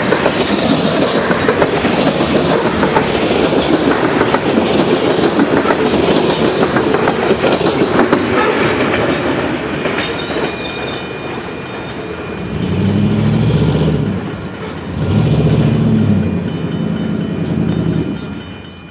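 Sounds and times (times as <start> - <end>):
train rolling over rails: 0.0 - 18.9
grade crossing bell ringing: 7.7 - 18.9.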